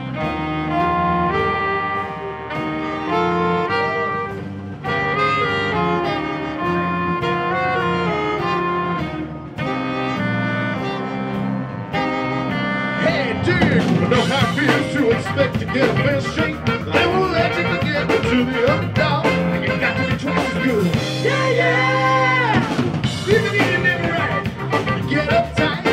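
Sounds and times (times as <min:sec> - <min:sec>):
live rock band with horns: 0:00.0 - 0:25.9
person singing: 0:12.8 - 0:25.9.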